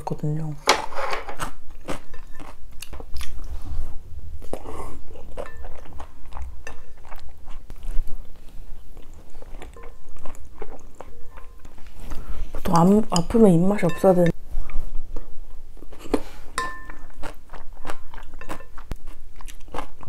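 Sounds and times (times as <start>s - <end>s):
person chewing wetly: 1.4s - 3.6s, 4.4s - 12.6s, 16.8s - 20.0s.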